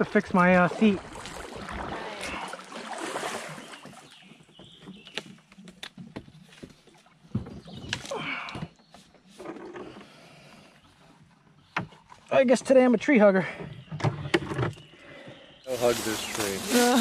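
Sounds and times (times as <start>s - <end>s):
paddle strokes splashing water: 0.0s - 5.5s.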